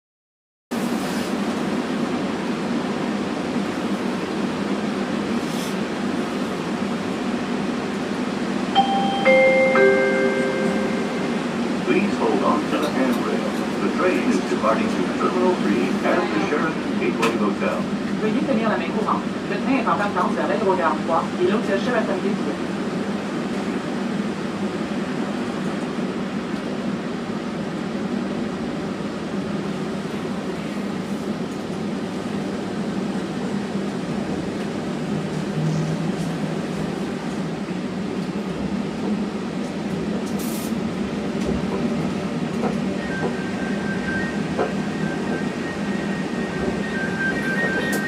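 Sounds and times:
train cabin running noise: 0.7s - 48.0s
steady high tone: 8.7s - 12.1s, 43.0s - 48.0s.

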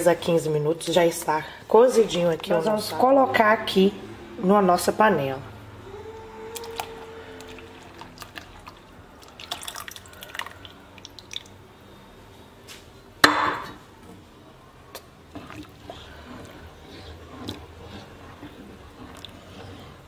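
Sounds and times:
milk pouring into pot: 6.6s - 11.6s
spoon stirring in pot: 15.0s - 20.0s.

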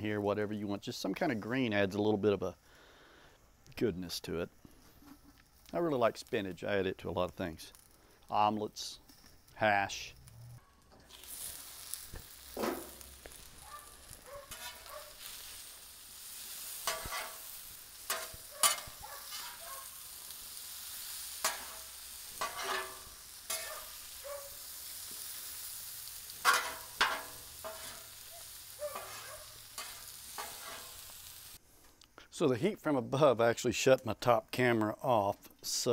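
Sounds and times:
food sizzling on griddle: 4.1s - 31.6s
metal spatula scraping griddle: 11.0s - 20.2s, 20.9s - 31.2s.

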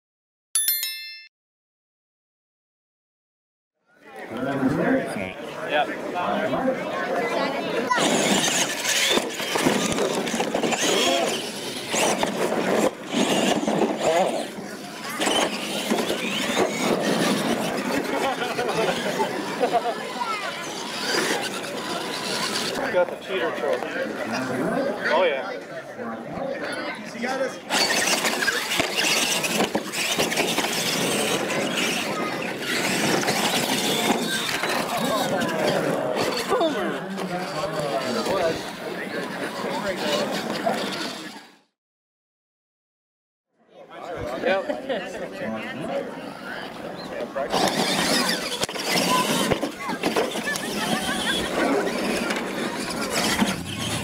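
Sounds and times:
crowd voices: 3.8s - 41.7s, 43.6s - 54.0s
small motors running: 7.9s - 22.9s, 27.7s - 41.5s, 47.4s - 54.0s
electric motors whining: 47.5s - 54.0s.

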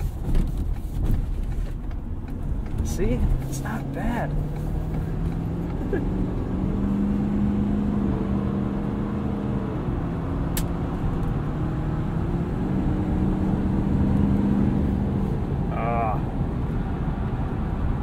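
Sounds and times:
diesel engine drone: 0.0s - 18.0s
road noise: 0.0s - 18.0s
sharp click: 10.5s - 10.8s.

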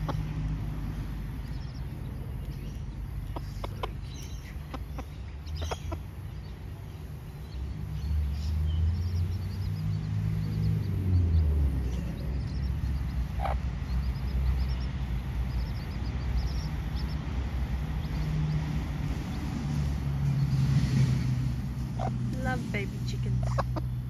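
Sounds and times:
hen clucking: 0.0s - 6.8s, 12.0s - 18.4s, 21.8s - 24.0s
chicks peeping: 0.0s - 24.0s
steady low rumble: 0.0s - 24.0s.

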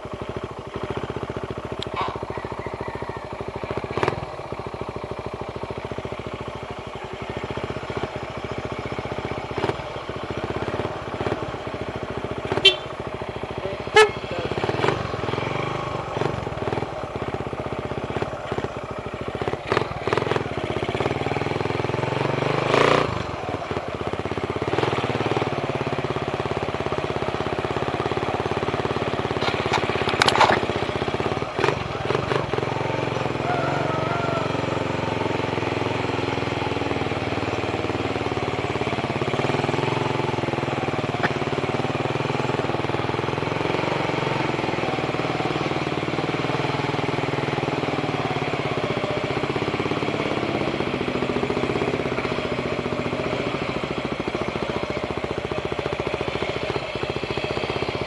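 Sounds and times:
motorcycle engine idling: 0.0s - 58.0s.

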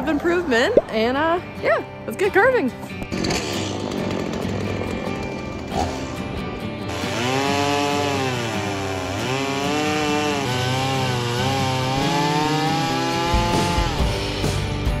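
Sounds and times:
chainsaw cutting log: 3.0s - 6.2s, 6.9s - 14.4s.

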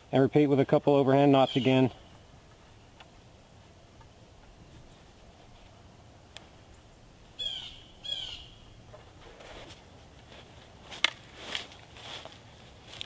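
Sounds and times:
bird calling: 1.4s - 3.1s, 6.6s - 8.8s
rustle of dry leaves: 6.5s - 13.0s.

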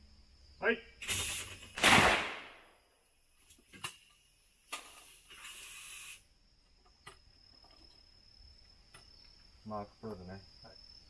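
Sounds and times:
short hiss: 1.0s - 2.4s, 3.4s - 6.3s
shotgun shot: 1.8s - 2.7s.

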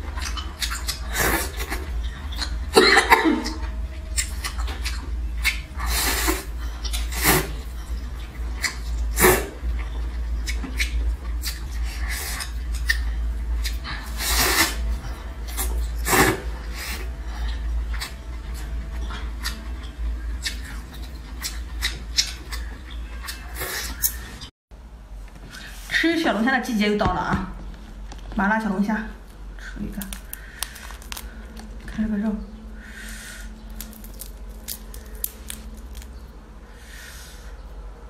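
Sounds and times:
chewing: 0.0s - 2.7s, 3.4s - 16.2s, 17.4s - 24.5s, 30.0s - 31.8s, 33.7s - 36.2s
steady low hum: 0.0s - 38.0s.

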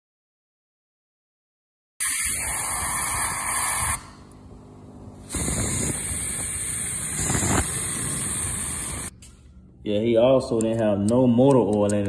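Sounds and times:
aerosol spray hissing: 2.0s - 4.2s, 5.2s - 9.1s.

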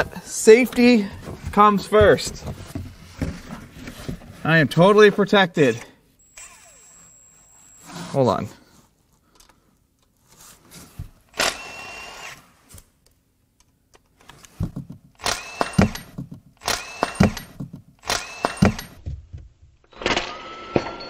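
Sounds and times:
cordless driver whining and knocking: 6.3s - 7.2s, 11.3s - 12.4s, 14.6s - 19.0s.

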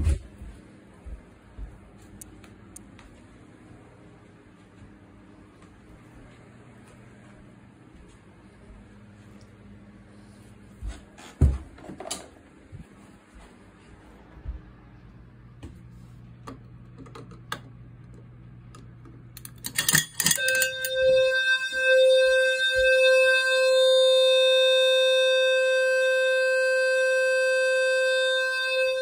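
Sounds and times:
fire alarm horn tone: 19.7s - 29.0s.

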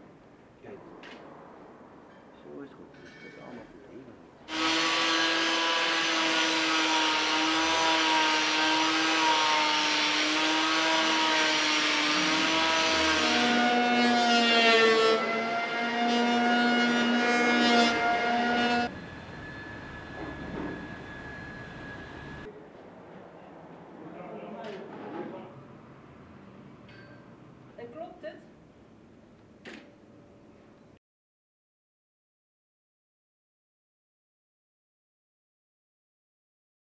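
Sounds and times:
power tool motor whine: 4.5s - 22.5s.

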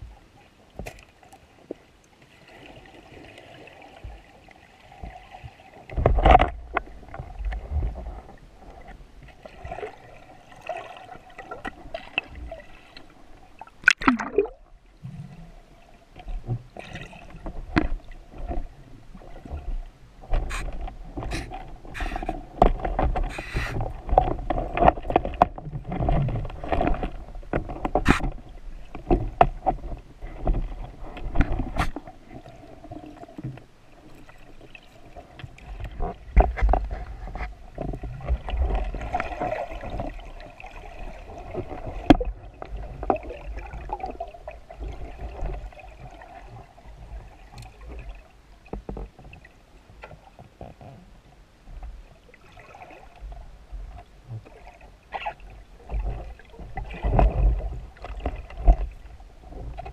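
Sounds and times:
muffled water movement: 0.0s - 59.9s
sharp underwater clicks and knocks: 5.9s - 8.0s, 13.6s - 14.6s, 17.4s - 18.7s, 20.3s - 32.1s, 35.4s - 40.1s, 41.6s - 43.3s.

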